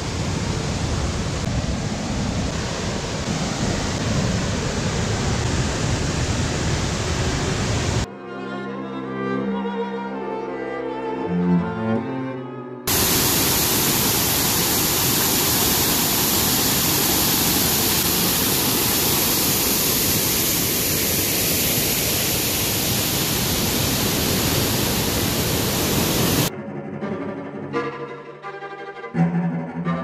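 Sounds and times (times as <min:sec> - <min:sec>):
waterfall rushing: 0:00.0 - 0:08.1, 0:12.9 - 0:26.5.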